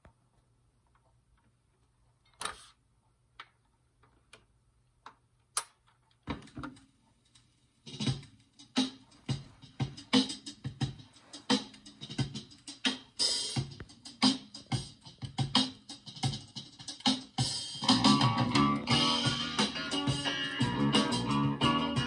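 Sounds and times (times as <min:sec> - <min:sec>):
sharp drum beats: 0:07.9 - 0:21.1
band music with guitar: 0:17.8 - 0:22.0.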